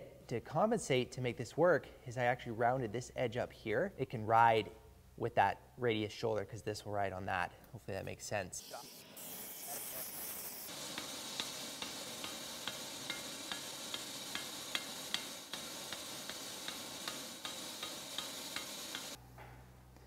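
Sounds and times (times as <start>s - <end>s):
steady hiss: 8.6s - 19.2s.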